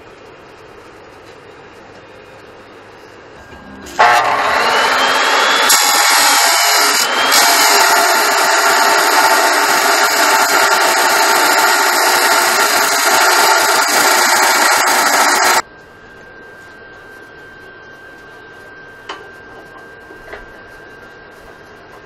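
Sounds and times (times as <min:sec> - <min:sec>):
faint hum with high tone: 0:00.0 - 0:07.4, 0:15.6 - 0:22.0
chop saw grinding steel: 0:03.6 - 0:15.6.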